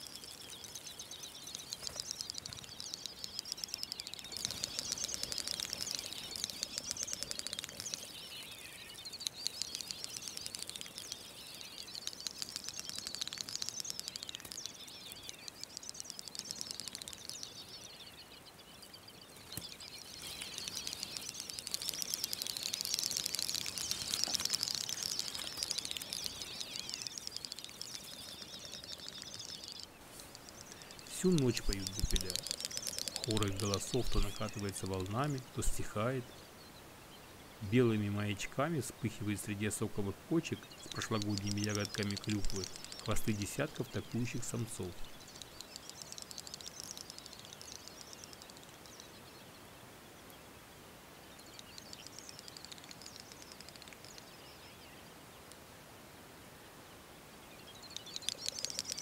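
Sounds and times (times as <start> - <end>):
birds clicking and twittering: 0.0 - 50.6, 51.2 - 55.6, 57.5 - 59.0.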